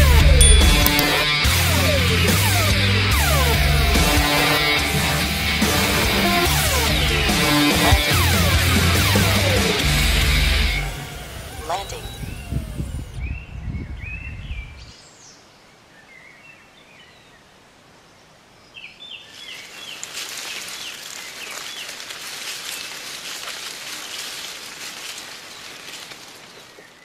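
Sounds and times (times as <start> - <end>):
small birds chirping: 11.7 - 27.0
wind buffeting microphone: 12.0 - 15.0
wind rustling through grass: 12.4 - 27.0.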